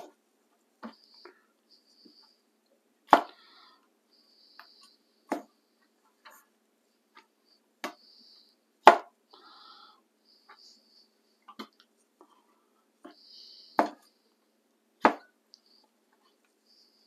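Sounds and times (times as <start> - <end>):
cleaver chopping on wooden board: 8.9 - 9.1, 15.0 - 15.3.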